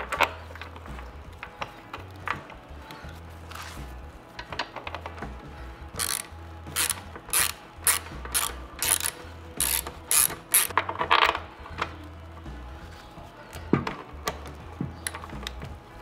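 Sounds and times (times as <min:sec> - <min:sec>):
hand ratchet clicking: 0:05.9 - 0:11.9.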